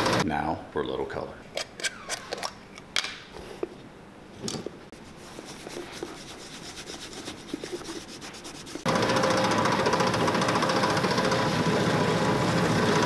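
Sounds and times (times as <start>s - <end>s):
buffing wheel motor running: 0.0s - 0.2s, 8.9s - 13.0s
cloth rubbing on leather shoe: 4.9s - 8.9s.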